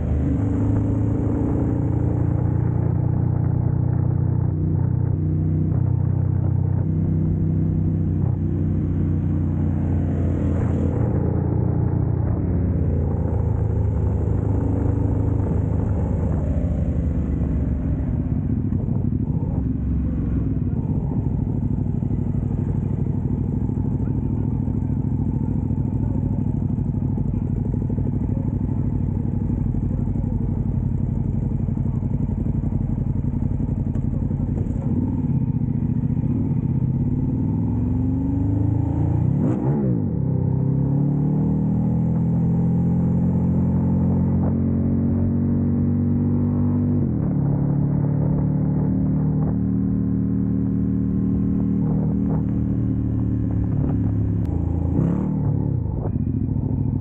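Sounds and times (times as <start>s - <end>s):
motorcycle engines idling: 13.5s - 37.2s.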